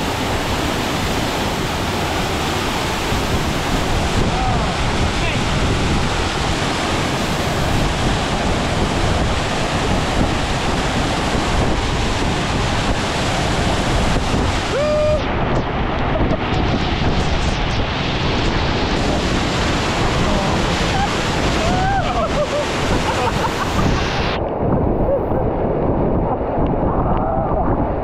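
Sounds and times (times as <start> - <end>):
waterfall crashing into pool: 0.0 - 24.4
person shouting: 14.7 - 15.2, 20.2 - 22.3.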